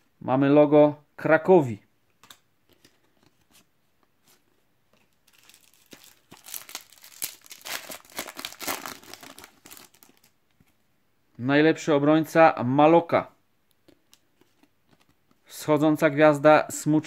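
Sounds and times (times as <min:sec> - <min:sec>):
foil packet tearing and crinkling: 0:05.3 - 0:10.4.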